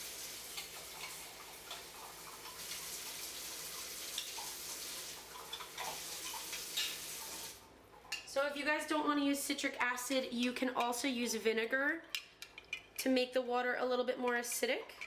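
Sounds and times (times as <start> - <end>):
dye water simmering and sizzling: 0.0 - 8.3.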